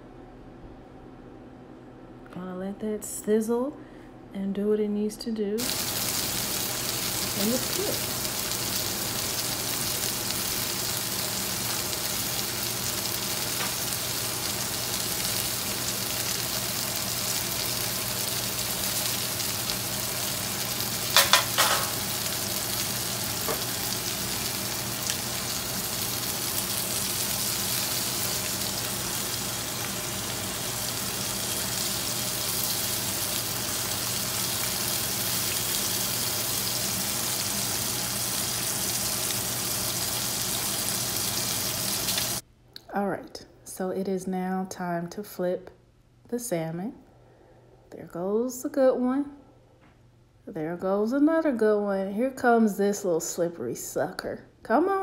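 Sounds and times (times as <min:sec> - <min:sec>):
fish sizzling in a skillet: 0:05.6 - 0:42.4.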